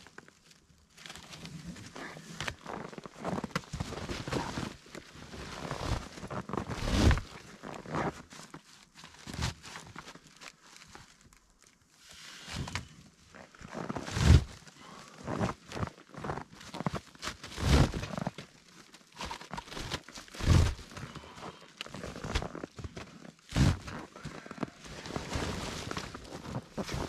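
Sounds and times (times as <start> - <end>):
tarp rustling: 0.0 - 27.0
rope being pulled: 5.5 - 8.2, 13.7 - 14.6, 15.2 - 18.3, 19.1 - 21.2, 23.5 - 27.0
boots in snow: 15.2 - 18.3, 20.4 - 21.2, 23.5 - 27.0.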